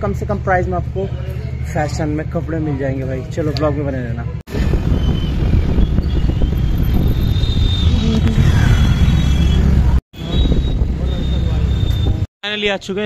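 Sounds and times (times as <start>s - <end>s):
motorbike road noise: 0.0s - 12.3s
wind rumble on microphone: 4.5s - 12.3s.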